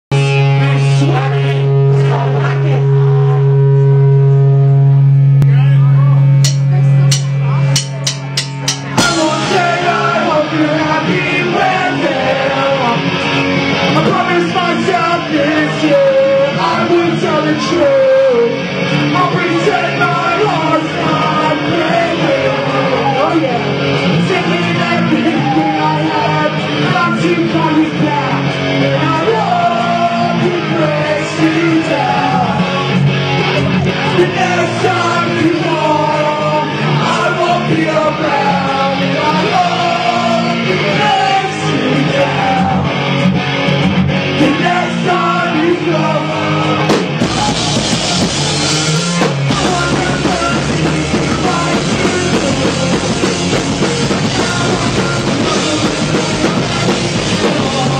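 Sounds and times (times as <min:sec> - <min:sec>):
bass: 0:00.0 - 0:57.9
drums: 0:00.1 - 0:57.9
electric guitars: 0:00.1 - 0:57.9
person singing lead vocal: 0:00.2 - 0:04.2, 0:08.8 - 0:43.4, 0:44.2 - 0:57.9
cymbals: 0:06.4 - 0:10.0.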